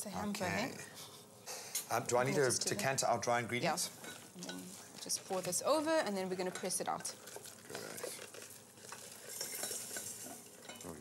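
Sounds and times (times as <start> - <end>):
spoon scraping and clinking pot: 6.4 - 11.0.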